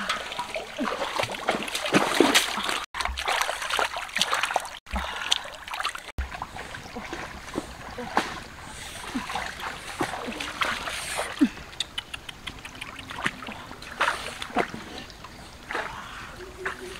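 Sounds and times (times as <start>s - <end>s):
water splashing from hands washing fish: 0.0s - 11.6s
stream trickling: 0.0s - 16.9s.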